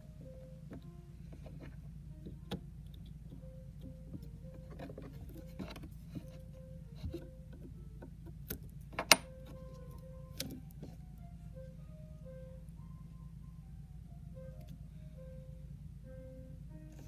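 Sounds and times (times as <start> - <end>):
coin clicking on wood: 8.9 - 9.3
coin clicks and taps: 8.9 - 9.6.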